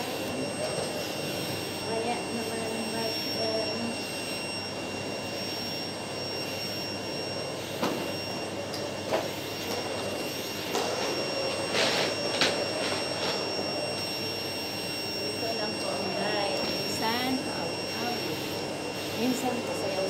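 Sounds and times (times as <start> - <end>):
vacuum cleaner motor whine: 0.0 - 20.0.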